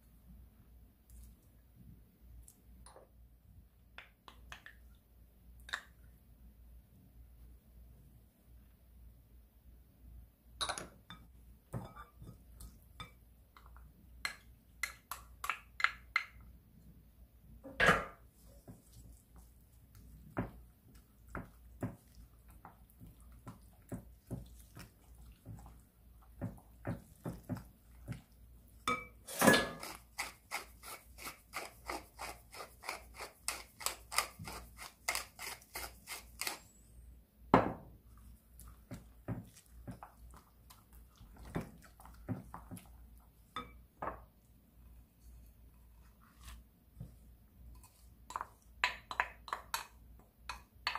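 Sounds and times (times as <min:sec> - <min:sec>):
spoon tapping glass bowl: 0:28.8 - 0:29.2, 0:48.3 - 0:50.9.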